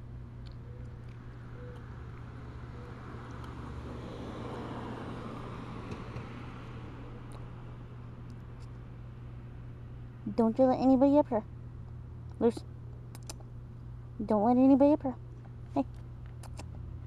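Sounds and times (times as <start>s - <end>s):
steady low hum: 0.0s - 17.0s
car passing: 1.4s - 8.2s.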